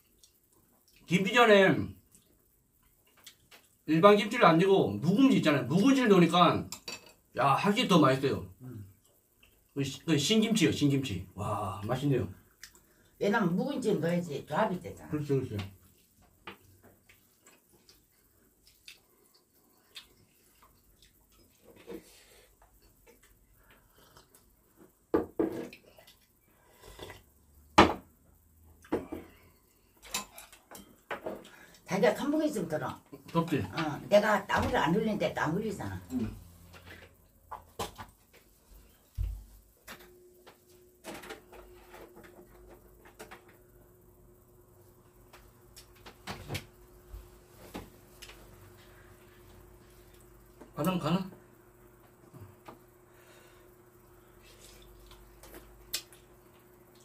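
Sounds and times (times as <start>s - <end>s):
electric fan motor humming: 27.4s - 57.0s
objects being handled and set down: 39.2s - 43.6s.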